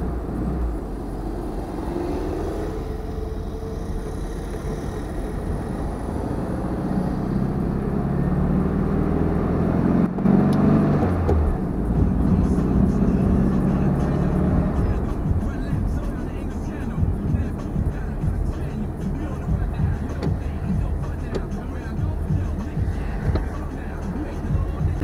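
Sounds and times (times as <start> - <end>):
car engine while driving: 0.0 - 25.0.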